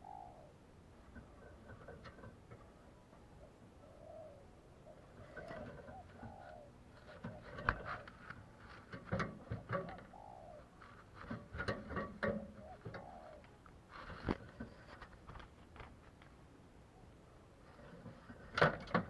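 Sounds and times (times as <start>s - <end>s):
dove cooing: 0.0s - 14.9s
sharp clicks and knocks: 7.1s - 10.1s, 11.2s - 16.4s.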